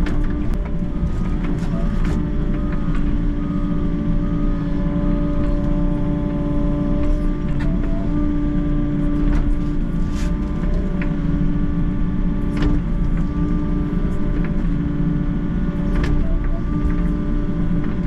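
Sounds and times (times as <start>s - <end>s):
excavator engine and hydraulics: 0.0s - 18.0s.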